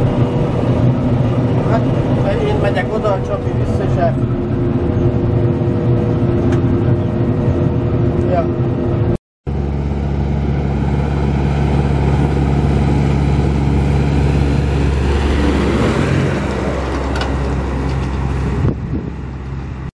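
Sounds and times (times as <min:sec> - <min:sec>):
tractor diesel engine passing: 0:00.0 - 0:19.9
tyre noise on road: 0:09.5 - 0:19.9.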